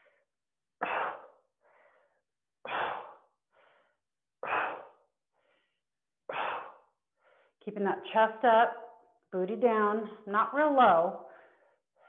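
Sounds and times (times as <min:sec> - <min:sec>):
woman inhaling: 0:00.9 - 0:07.6.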